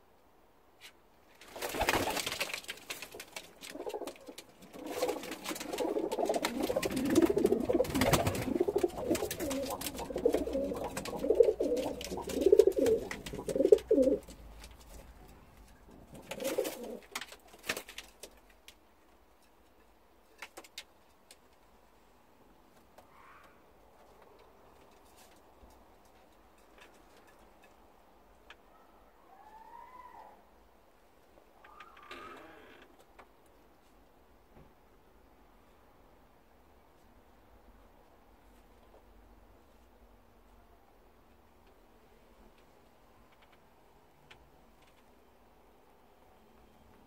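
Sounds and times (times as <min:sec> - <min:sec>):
pigeons cooing: 0:03.6 - 0:14.4, 0:16.0 - 0:17.1.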